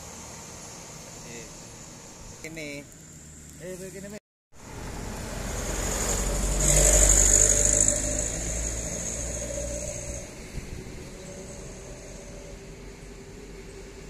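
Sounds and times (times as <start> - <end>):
heavy truck diesel engine passing: 4.6 - 14.0.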